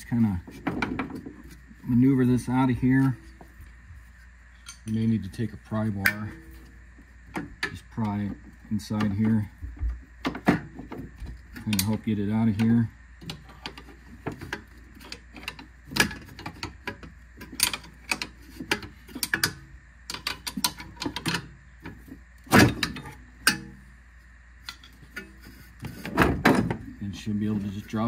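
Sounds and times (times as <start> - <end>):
metal knocks and clunks: 0.4 - 1.5, 26.0 - 27.0.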